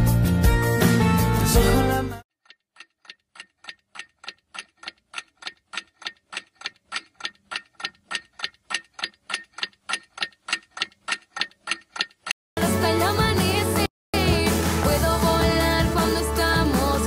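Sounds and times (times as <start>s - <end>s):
clock ticking: 2.4s - 12.4s.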